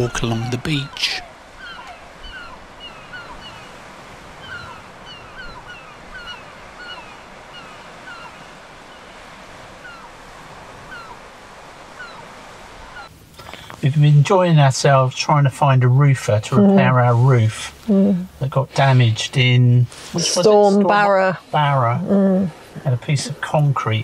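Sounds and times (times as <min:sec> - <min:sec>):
small birds chirping: 0:00.0 - 0:03.8, 0:04.4 - 0:09.2
steady outdoor hiss: 0:00.0 - 0:24.0.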